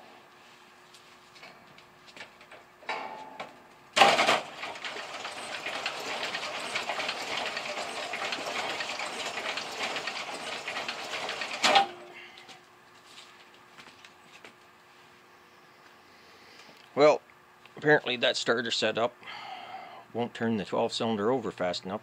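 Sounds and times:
electric starter cranking engine: 0:04.0 - 0:12.2.

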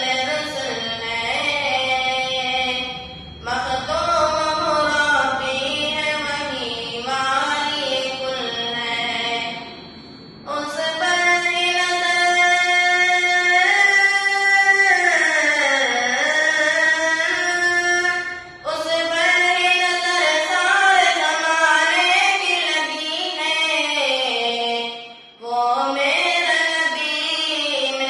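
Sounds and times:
boy singing unaccompanied: 0:00.0 - 0:09.7, 0:10.4 - 0:28.0.

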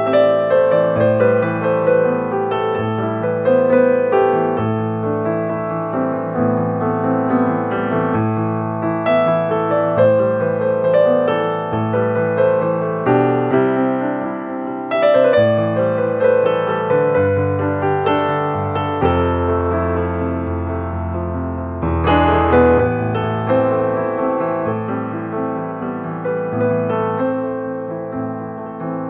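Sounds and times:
piano music: 0:00.0 - 0:29.0.

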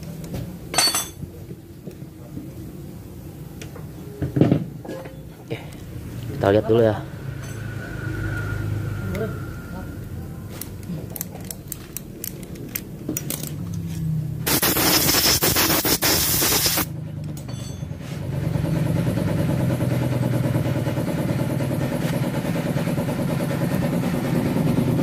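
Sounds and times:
loud rushing noise: 0:06.9 - 0:10.4, 0:14.4 - 0:16.9
ratchet handle clicking: 0:10.6 - 0:13.8
engine running steadily: 0:12.2 - 0:25.0.

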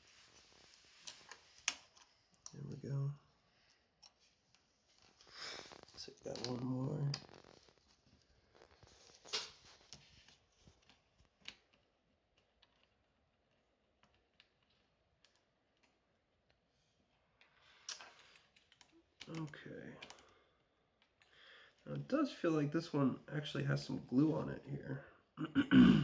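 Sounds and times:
small parts clicking and tapping: 0:10.7 - 0:16.6.

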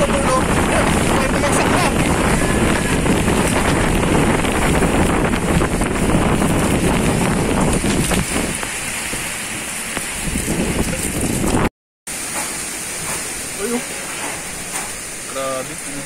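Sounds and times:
wind buffeting microphone: 0:00.0 - 0:11.7
heavy rain: 0:00.0 - 0:16.0.

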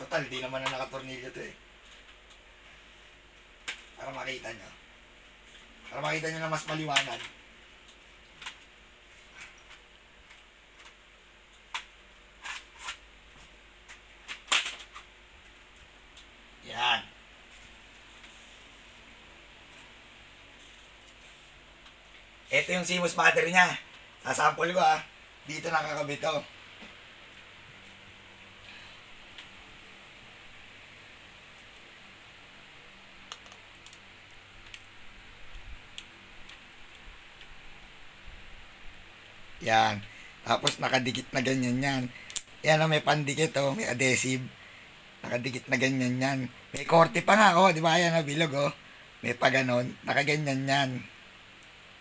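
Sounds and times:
steady hiss: 0:00.0 - 0:52.0
plastic clips snapping: 0:14.3 - 0:15.1.

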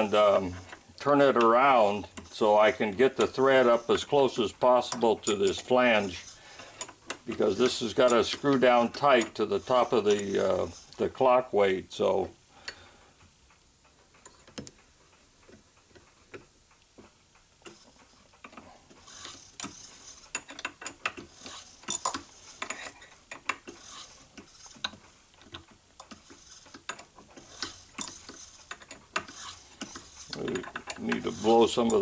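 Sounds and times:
metal clicks scrapes and rattles: 0:00.0 - 0:11.2, 0:17.6 - 0:32.0.

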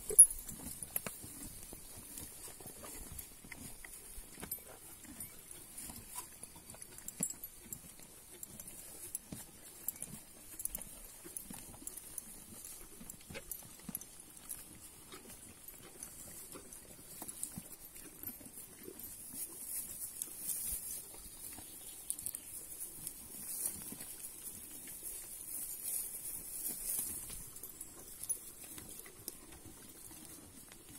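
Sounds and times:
mule chewing hay: 0:00.0 - 0:30.9.

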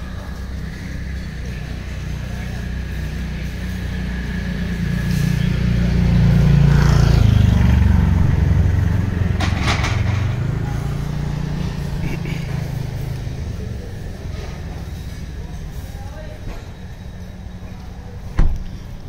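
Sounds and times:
vehicle engine passing: 0:00.0 - 0:19.0.

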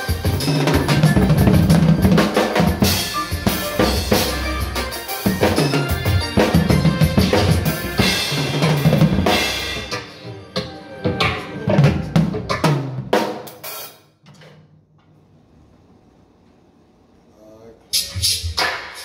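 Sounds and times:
recorded song: 0:00.0 - 0:13.9
drum kit playing: 0:00.0 - 0:14.1, 0:17.9 - 0:19.0.

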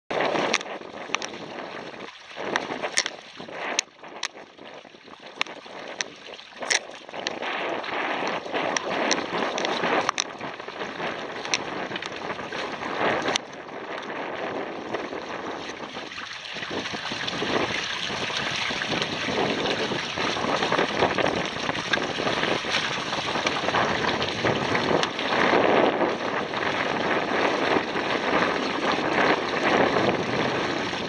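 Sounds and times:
water rushing past hulls: 0:00.1 - 0:31.0
wind on microphone: 0:00.1 - 0:31.0
sharp ticks and knocks: 0:00.3 - 0:01.4, 0:02.4 - 0:04.4, 0:05.3 - 0:07.5, 0:08.2 - 0:12.4, 0:13.0 - 0:14.1.

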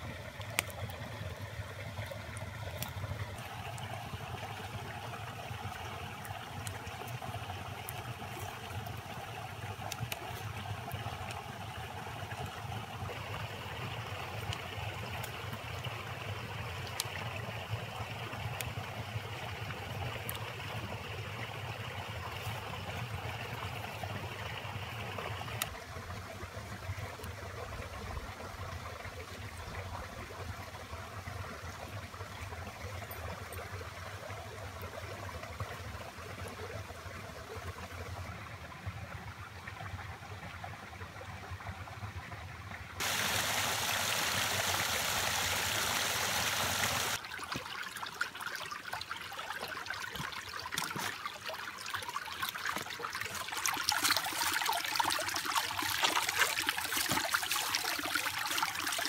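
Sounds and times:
creek trickling: 0:00.0 - 0:59.0
rush of water: 0:43.0 - 0:59.0.

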